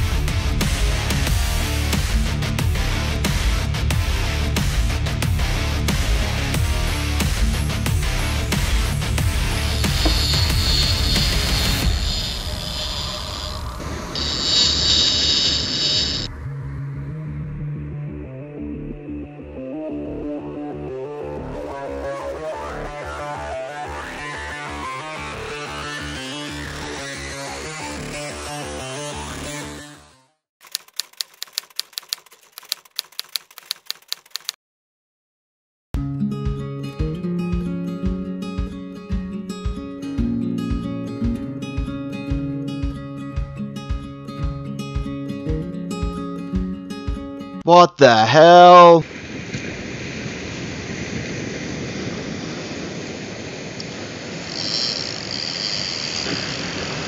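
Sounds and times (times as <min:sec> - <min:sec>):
guitar music: 0:05.6 - 0:11.8, 0:36.0 - 0:47.6
high-pitched whine: 0:09.5 - 0:16.3
typewriter keystroke clicks: 0:30.6 - 0:34.6
surf washing on beach: 0:48.5 - 0:55.5, 0:56.2 - 0:57.0.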